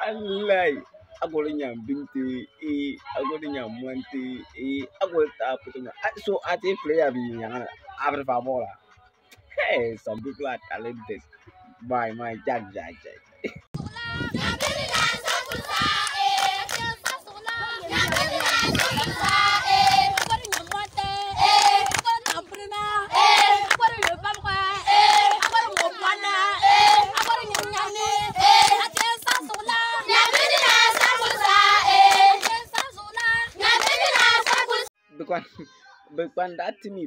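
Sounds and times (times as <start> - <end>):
children singing: 14.3 - 20.2, 23.0 - 23.8, 24.8 - 34.9
hands clapping: 14.4 - 22.6, 23.2 - 26.1, 26.7 - 34.8.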